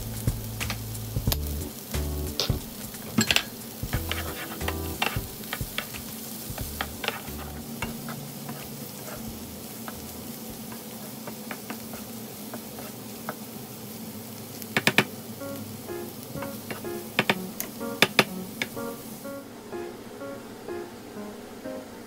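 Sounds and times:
vegetables sizzling in a frying pan: 0:00.0 - 0:22.0
wooden spatula scraping a pan: 0:03.9 - 0:13.4.

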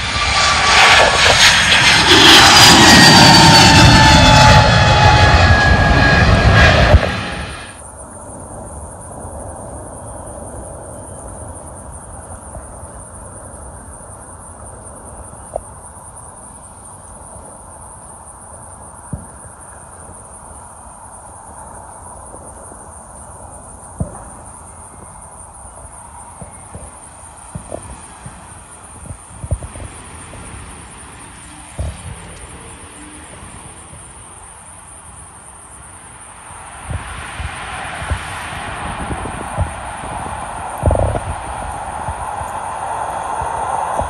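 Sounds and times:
low rumble: 0:00.0 - 0:07.8, 0:36.8 - 0:44.0
insects chirring: 0:00.0 - 0:44.0.

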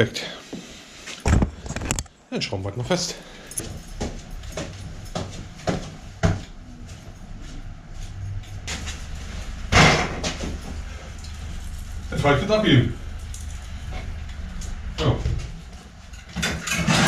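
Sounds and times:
steady low hum: 0:01.3 - 0:16.9.

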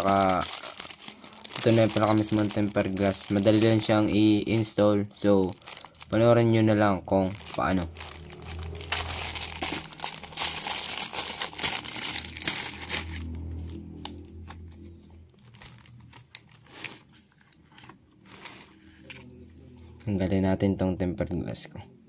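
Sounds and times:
plastic wrapping crinkling: 0:00.0 - 0:14.5, 0:15.2 - 0:19.2.

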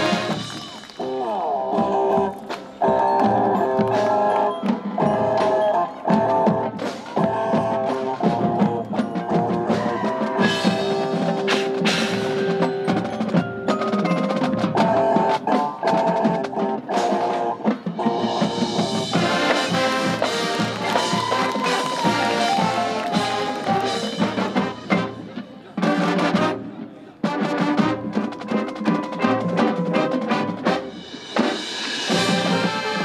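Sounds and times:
marching band playing: 0:00.0 - 0:33.0
drum strikes: 0:17.7 - 0:26.5.

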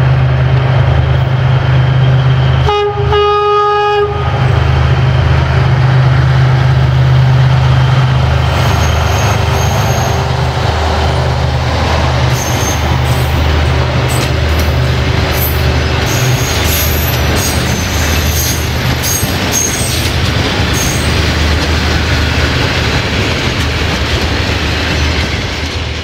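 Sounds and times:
locomotive engine drone: 0:00.0 - 0:26.0
high wheel squeals: 0:08.5 - 0:10.5, 0:12.2 - 0:21.2.

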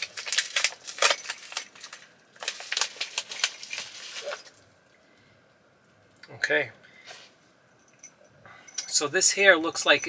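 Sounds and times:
paper packaging crinkling: 0:00.0 - 0:04.6.

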